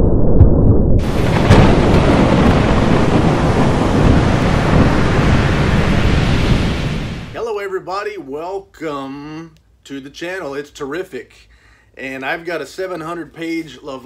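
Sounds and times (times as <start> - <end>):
low rumble of thunder: 0.0 - 7.4
sharp thunder crack: 0.0 - 7.4
rain hissing: 1.0 - 7.4.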